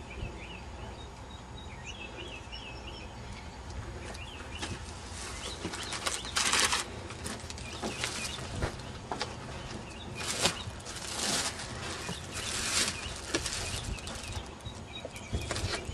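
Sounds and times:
birds chirping: 0.0 - 15.9
handling noises: 3.6 - 15.9
packaging rustling: 5.1 - 14.6.

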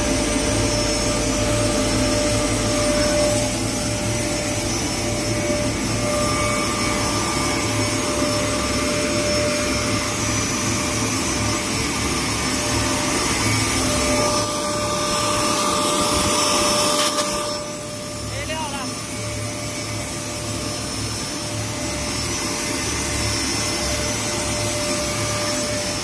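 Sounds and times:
powder grinder running: 0.0 - 18.9
high whine: 0.0 - 26.0.

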